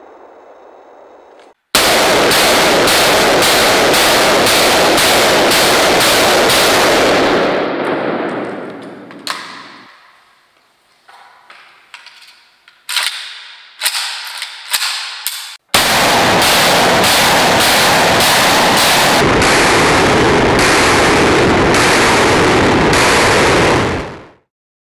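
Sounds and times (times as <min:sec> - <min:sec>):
automatic rifle fire: 0:01.8 - 0:10.0, 0:15.8 - 0:24.4
metallic clicks from rifle handling: 0:12.0 - 0:15.6.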